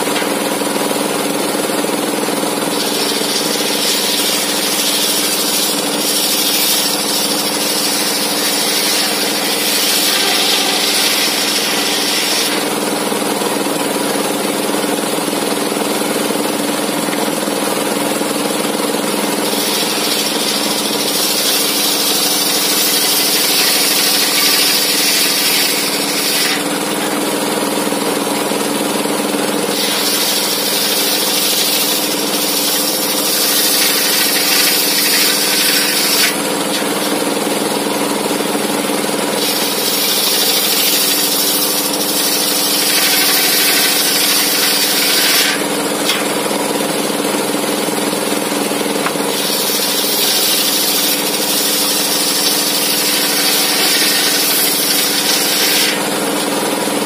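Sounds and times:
saw blade cutting wood: 0:00.0 - 0:57.0
circular saw blade droning: 0:02.4 - 0:14.6.

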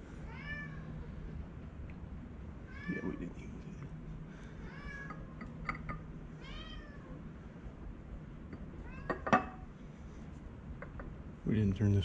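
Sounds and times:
steady low hum: 0:00.0 - 0:12.0
cat meowing: 0:06.4 - 0:07.2.

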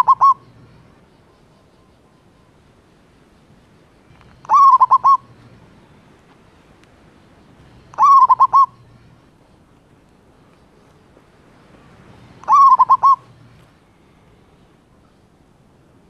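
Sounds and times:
dove cooing: 0:00.0 - 0:00.9, 0:04.3 - 0:05.3, 0:07.8 - 0:08.9, 0:12.4 - 0:13.6.

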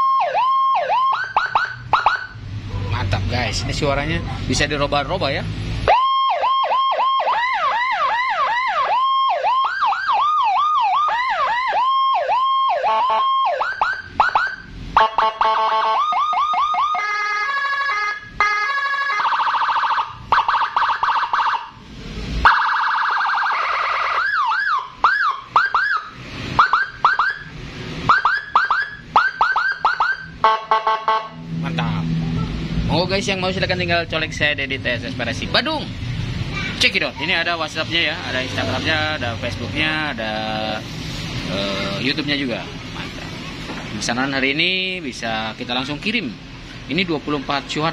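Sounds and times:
electronic siren yelp and warble: 0:00.0 - 0:02.4, 0:05.8 - 0:21.8, 0:22.4 - 0:31.4.

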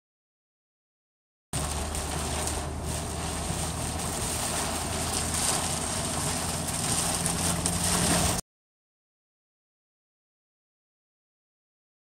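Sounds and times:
engine hum: 0:01.6 - 0:08.4
wind tyre and rain noise: 0:01.6 - 0:08.4.

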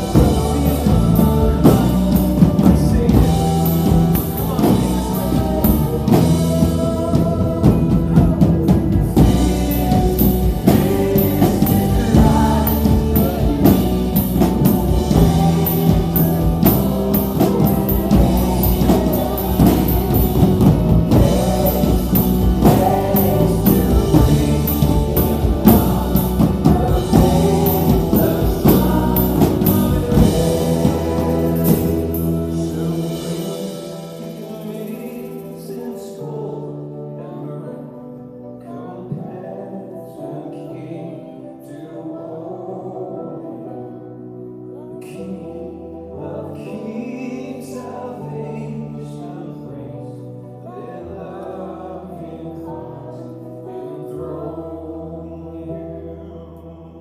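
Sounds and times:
drum and cymbal hits: 0:00.0 - 0:35.7
bass: 0:00.0 - 0:36.2
electric guitars: 0:00.0 - 0:41.6
person singing: 0:00.0 - 0:44.1
keyboard: 0:00.0 - 0:57.0.

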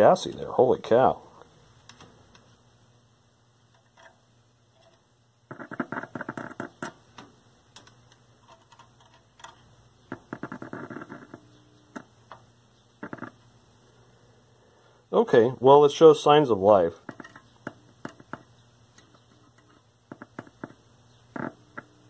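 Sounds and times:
faint steady hum: 0:00.0 - 0:22.0
radio speaker crackling: 0:10.0 - 0:12.4, 0:13.0 - 0:13.5, 0:17.0 - 0:22.0.

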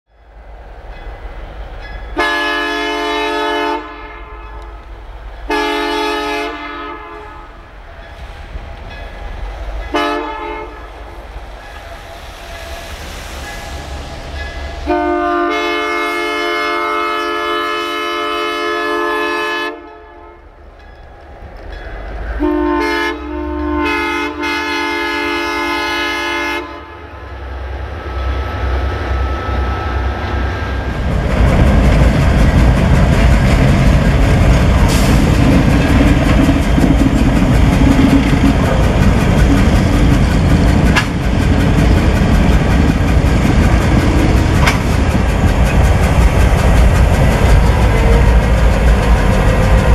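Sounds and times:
diesel locomotive engine throbbing: 0:00.1 - 0:49.9
train horn blasts: 0:02.2 - 0:04.9, 0:05.5 - 0:07.6, 0:09.8 - 0:11.0, 0:14.4 - 0:20.6, 0:22.3 - 0:27.3.

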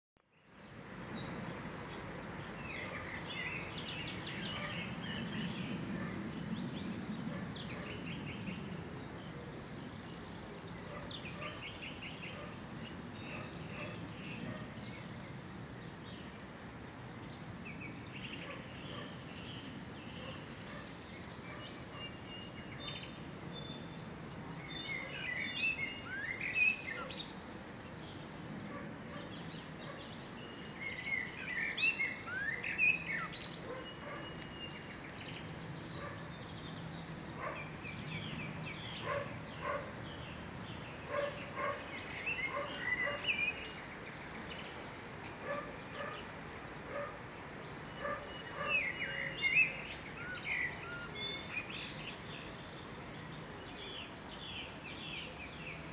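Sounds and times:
faint outdoor hiss: 0:00.2 - 0:55.9
birds chirping and whistling: 0:00.4 - 0:44.8, 0:45.4 - 0:55.9
low bird calls: 0:41.0 - 0:43.9.

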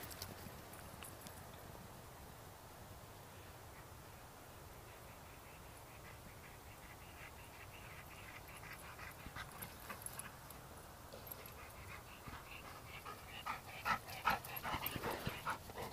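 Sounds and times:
dog panting: 0:05.4 - 0:15.9.

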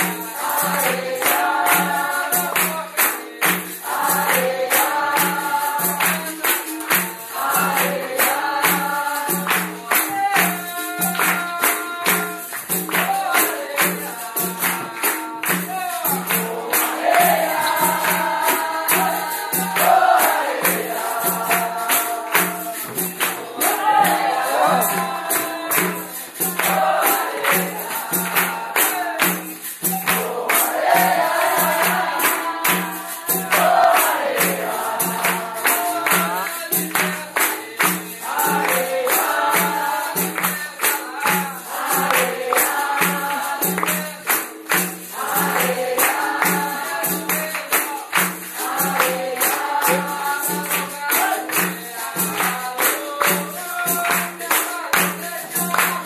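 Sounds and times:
drum steady beat: 0:00.0 - 0:56.0
group singing together: 0:00.0 - 0:56.0
pandeiro: 0:00.0 - 0:56.0
people clapping along: 0:00.0 - 0:56.0.

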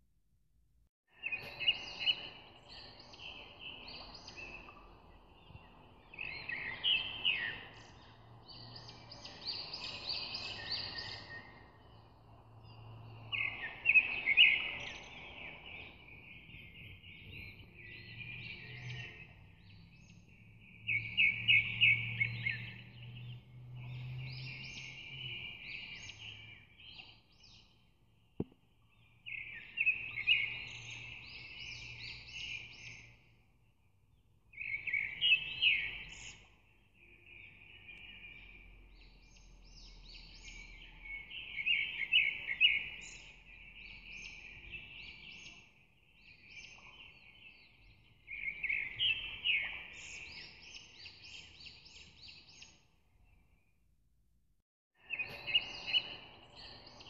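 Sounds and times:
birds chirping and trilling: 0:01.2 - 0:27.8, 0:28.8 - 0:33.6, 0:34.2 - 0:53.7, 0:55.0 - 0:57.0.

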